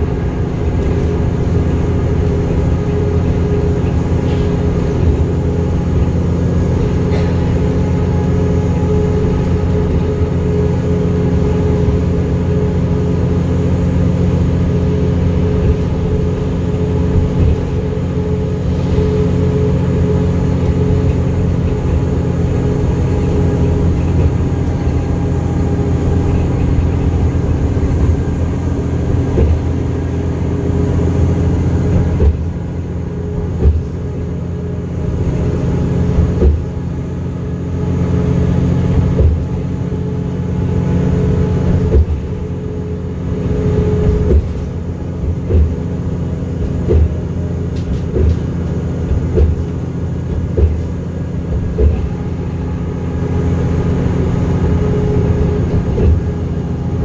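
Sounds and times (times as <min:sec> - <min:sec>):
bus engine hum and road noise: 0:00.0 - 0:57.0
knocks and rattles: 0:20.5 - 0:29.9, 0:44.0 - 0:52.6.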